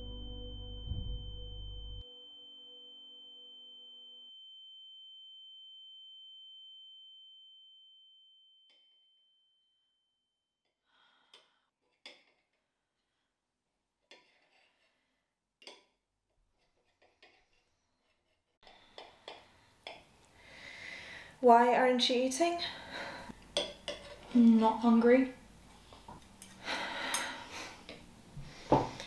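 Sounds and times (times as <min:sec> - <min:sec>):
high ringing tone: 0:00.0 - 0:10.0.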